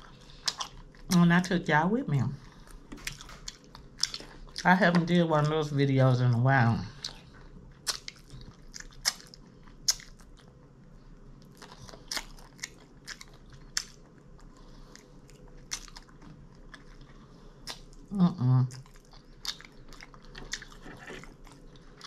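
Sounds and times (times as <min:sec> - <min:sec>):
quiet chewing: 0:00.0 - 0:01.2, 0:02.4 - 0:05.1, 0:06.9 - 0:22.0
crunching bites of fried food: 0:07.8 - 0:10.5, 0:11.4 - 0:18.0.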